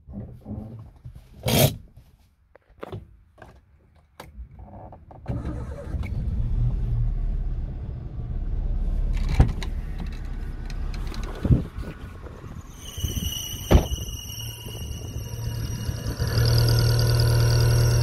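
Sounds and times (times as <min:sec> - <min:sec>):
car engine cranking and idling: 0:04.2 - 0:12.8, 0:14.9 - 0:18.0
engine belt noise: 0:13.9 - 0:18.0.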